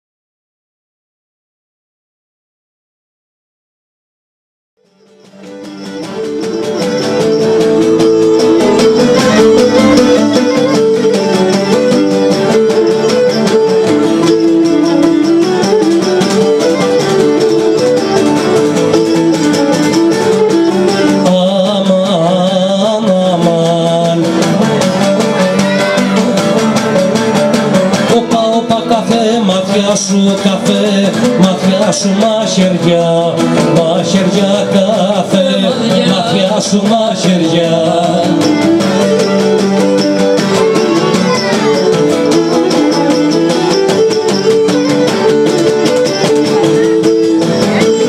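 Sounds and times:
plucked lutes: 4.9s - 48.0s
bowed lyra melody: 5.0s - 22.2s, 23.8s - 29.6s, 33.8s - 48.0s.

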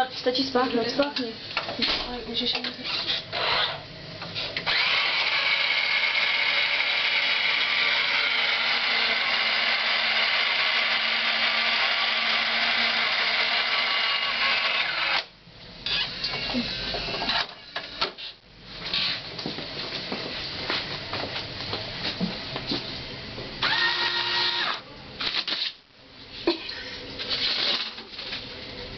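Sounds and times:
motor whirring with high whine: 4.6s - 15.3s, 23.6s - 24.8s.

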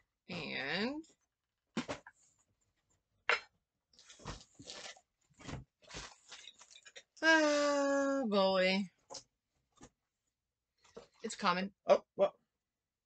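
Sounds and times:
cardboard and plastic rustling: 4.0s - 7.0s.

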